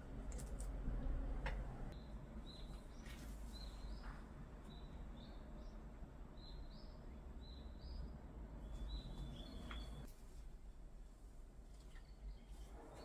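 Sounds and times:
faint bird chirping: 1.9s - 10.1s, 11.7s - 13.0s.

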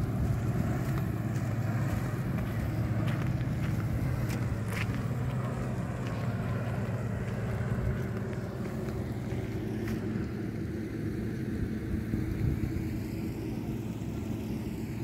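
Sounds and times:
low engine drone: 0.0s - 15.0s.

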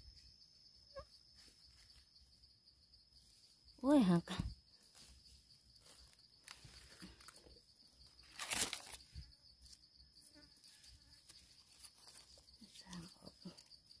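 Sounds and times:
high insect drone: 0.0s - 14.0s
leaf crunch: 8.2s - 9.1s
dry leaves rustling: 8.2s - 9.2s, 10.6s - 13.2s.

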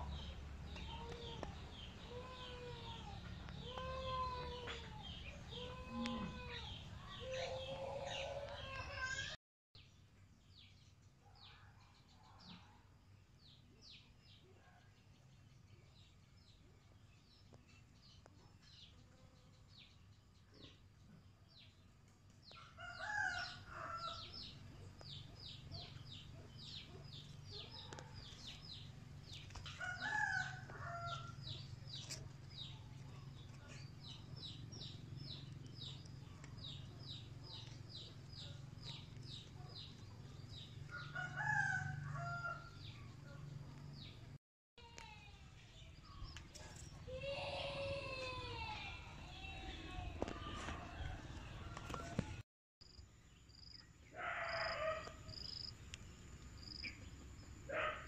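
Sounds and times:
distant rooster crowing: 22.8s - 24.5s, 29.7s - 31.6s, 40.5s - 42.9s, 50.2s - 52.4s.

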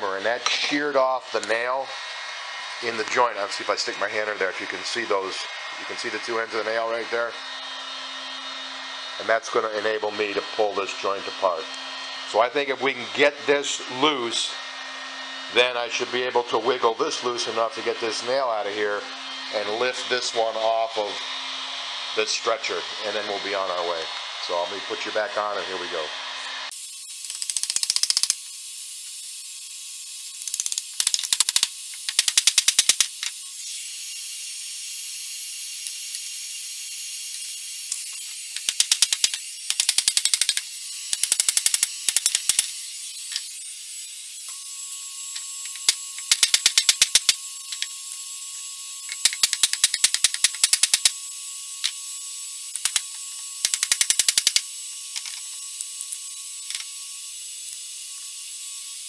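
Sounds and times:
heat gun blowing with fan whine: 0.0s - 59.0s
rapid clicking: 30.4s - 33.1s, 38.6s - 42.7s, 45.8s - 47.9s, 49.1s - 51.1s, 52.8s - 54.6s.

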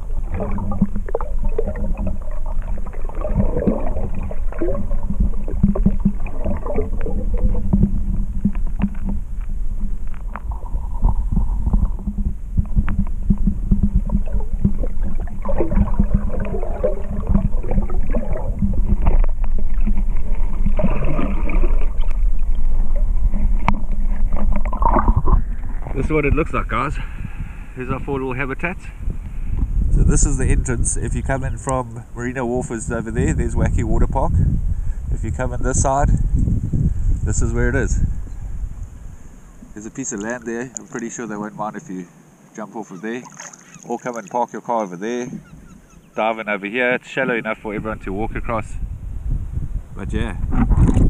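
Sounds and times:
water gurgling: 0.0s - 26.9s, 37.7s - 46.2s
underwater low rumble: 0.0s - 40.9s, 47.6s - 51.0s.

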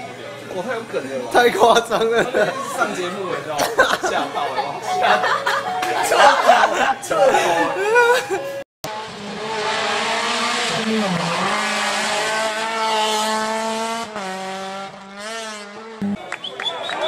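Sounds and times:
rally car engine at high revs: 8.8s - 16.2s.

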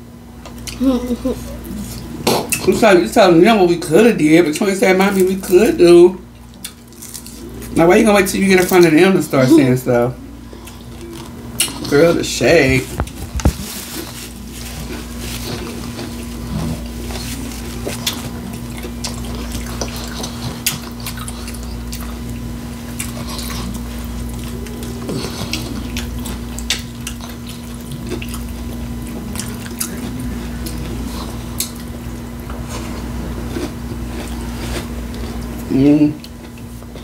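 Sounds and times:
steady low hum: 0.0s - 37.0s
wet chewing and crunching: 6.3s - 9.0s, 10.5s - 37.0s.

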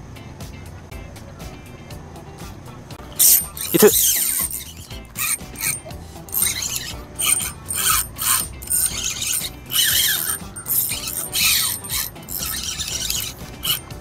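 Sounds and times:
fishing reel whirring: 3.2s - 14.0s.

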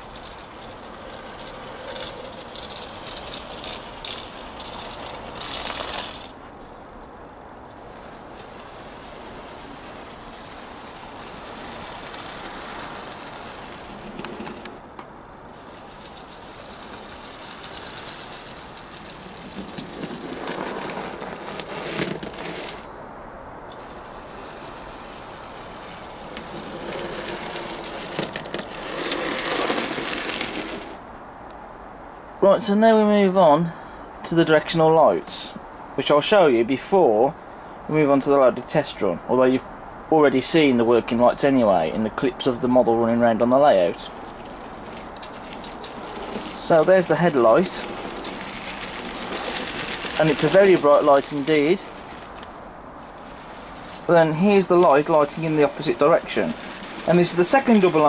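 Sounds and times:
model train rattling on track: 0.0s - 6.4s, 7.7s - 14.8s, 15.5s - 22.9s, 23.7s - 31.0s, 41.6s - 58.0s.

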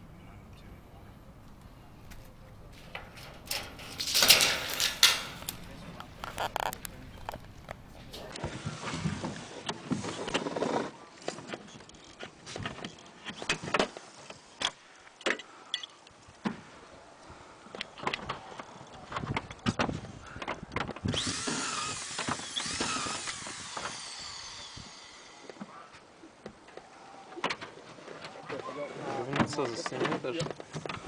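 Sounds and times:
knocks and clanks of metal panels: 2.7s - 5.8s.

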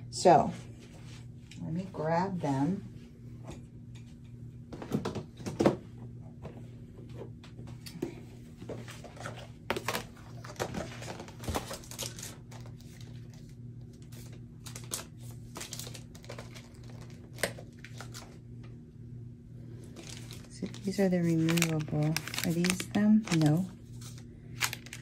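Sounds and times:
steady low hum: 0.0s - 25.0s
packaging crinkling: 9.8s - 18.4s, 19.9s - 25.0s.

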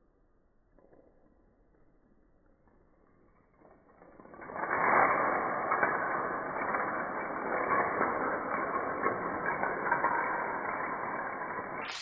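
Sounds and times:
toy dominoes toppling: 9.8s - 12.0s.

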